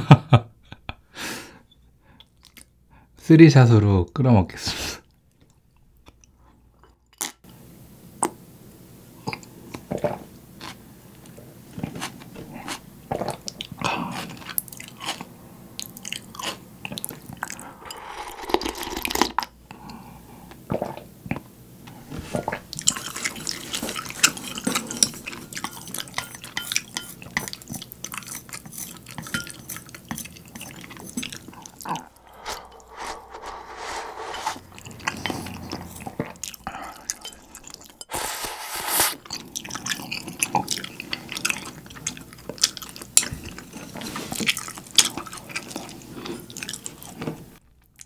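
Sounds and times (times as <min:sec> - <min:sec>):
gulping and slurping broth: 0:16.0 - 0:19.5.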